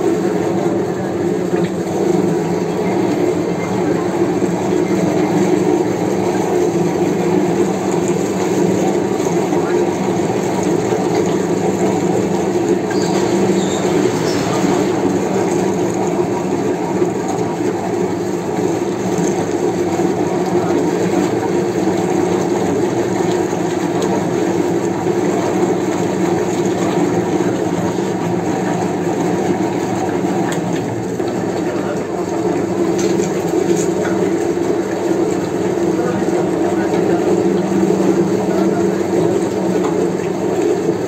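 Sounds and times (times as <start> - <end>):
meat mincer running: 0.0 - 41.0.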